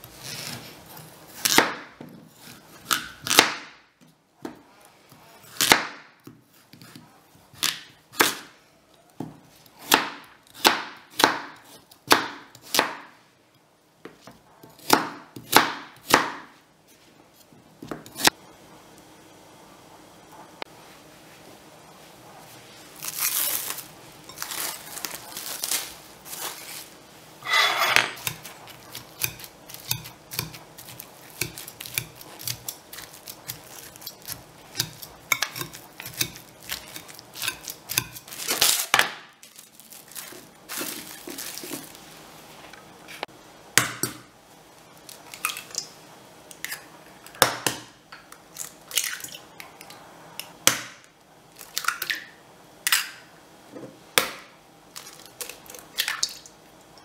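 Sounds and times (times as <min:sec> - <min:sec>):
plastic wrap crinkling: 0:22.8 - 0:27.1, 0:36.5 - 0:42.4, 0:54.9 - 0:56.4
masher scraping ceramic bowl: 0:27.4 - 0:28.4.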